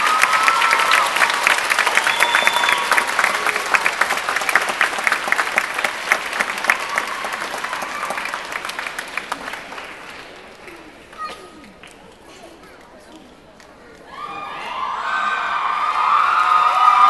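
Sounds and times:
shouted cheers: 0.0 - 3.7, 6.6 - 8.4, 14.1 - 17.0
audience applauding: 0.0 - 12.1, 14.1 - 17.0.

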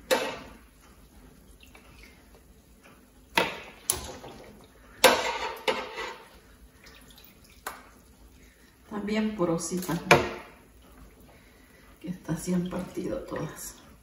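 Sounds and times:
metal tongs clacking on fryer: 0.0 - 0.6.

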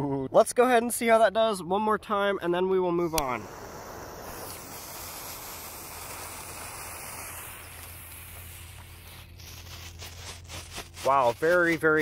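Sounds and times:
firework fuse hissing: 3.0 - 11.8.

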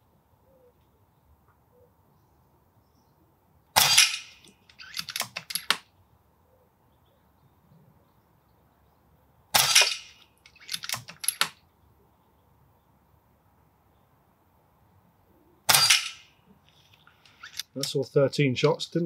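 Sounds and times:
air rifle shot: 3.8 - 4.5, 9.6 - 10.2, 15.7 - 16.3
rifle lever clicks: 4.0 - 5.8, 9.6 - 11.6.

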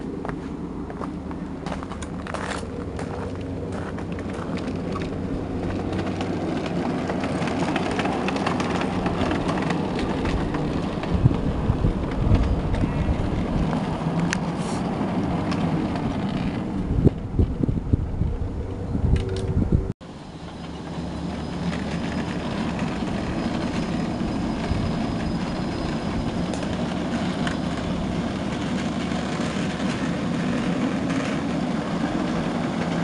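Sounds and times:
locomotive drive hum: 0.0 - 33.0
wheels rumbling on rails: 0.0 - 33.0
wheel clicks and knocks: 1.6 - 14.5.

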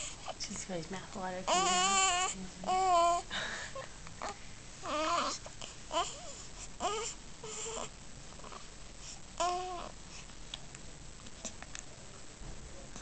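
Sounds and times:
baby grunting and whimpering: 1.5 - 3.3, 4.2 - 8.7, 9.4 - 10.0.

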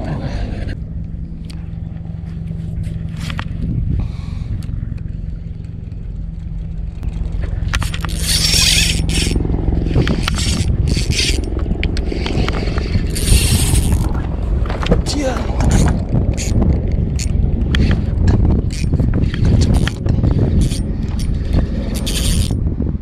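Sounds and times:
low rumble and hum: 0.0 - 23.0
sleeve scraping against camera: 7.7 - 14.2, 17.2 - 22.6.

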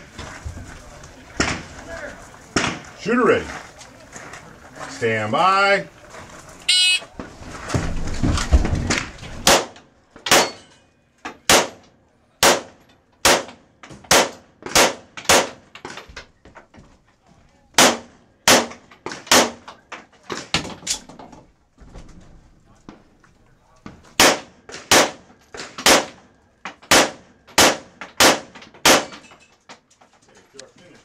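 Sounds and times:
handgun shots: 9.4 - 10.6, 12.4 - 15.6, 17.8 - 19.6, 26.9 - 29.2.

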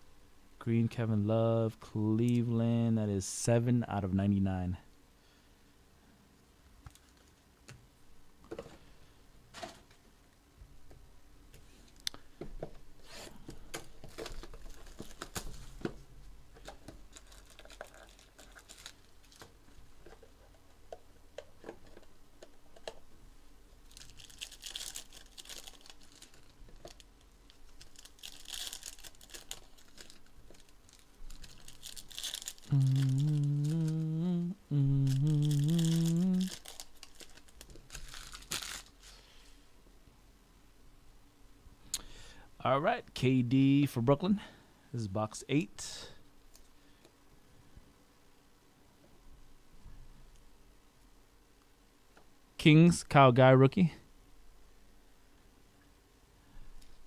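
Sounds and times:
foil wrappers rustling and tearing: 13.1 - 15.8, 16.6 - 20.4, 23.8 - 34.2, 35.0 - 39.4
man humming: 32.6 - 36.7.

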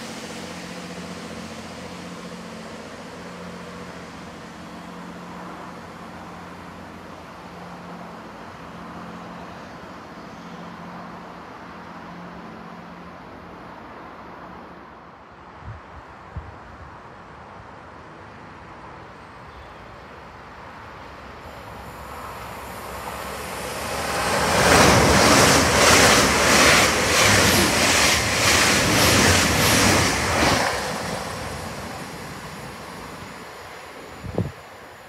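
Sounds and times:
train passing at speed: 0.0 - 35.0
wheel-on-rail rushing noise: 21.4 - 35.0.

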